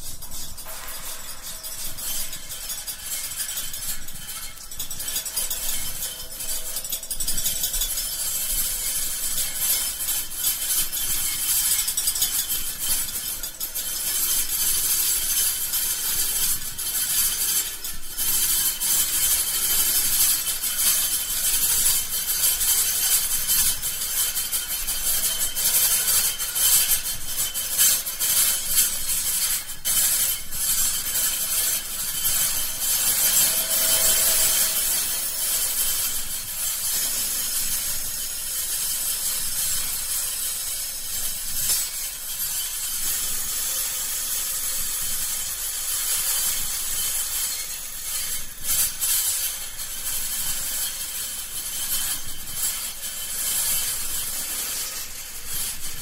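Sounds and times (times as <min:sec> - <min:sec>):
scratchy rasping scraping noise: 0:00.0 - 0:06.5, 0:27.5 - 0:38.8, 0:52.1 - 0:56.0.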